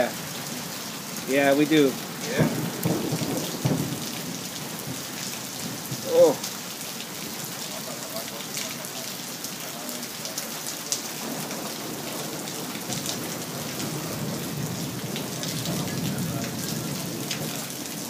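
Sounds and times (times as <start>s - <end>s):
heavy rain pouring: 0.0s - 18.0s
raindrops ticking close by: 0.0s - 18.0s
thunder rumble: 2.2s - 6.1s, 11.2s - 18.0s.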